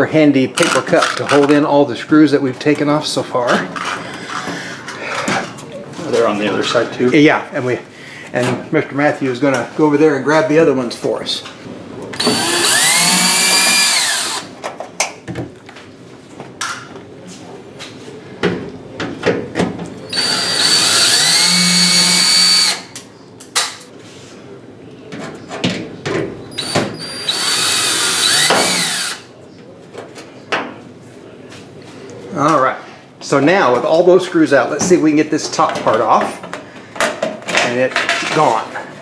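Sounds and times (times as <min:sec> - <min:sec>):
cordless drill whining: 0:12.2 - 0:14.5, 0:20.1 - 0:22.8, 0:26.6 - 0:29.2.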